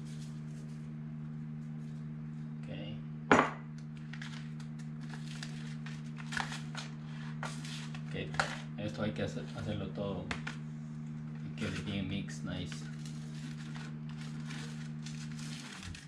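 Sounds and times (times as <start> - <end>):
salt shaker knocking on table: 3.3 - 3.6.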